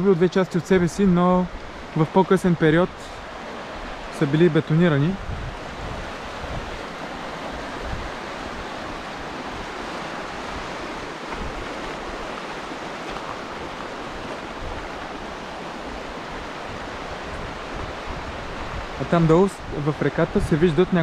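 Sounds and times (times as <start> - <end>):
river water rushing: 0.0 - 21.0
wind rumble on microphone: 5.0 - 21.0.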